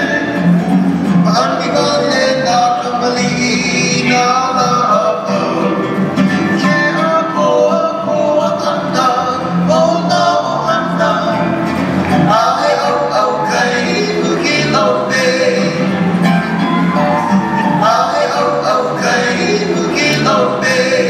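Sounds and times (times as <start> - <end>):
plucked string accompaniment: 0.0 - 21.0
person singing: 12.2 - 21.0.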